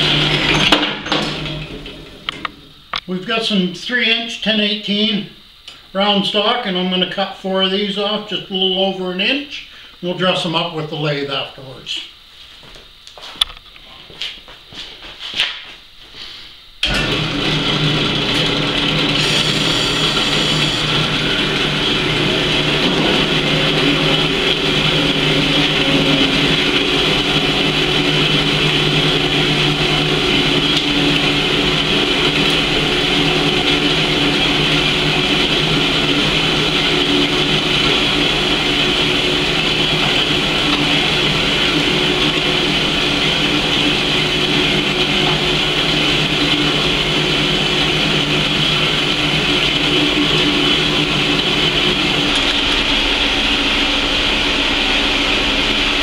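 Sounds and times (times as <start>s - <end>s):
band saw cutting metal: 16.8s - 56.0s.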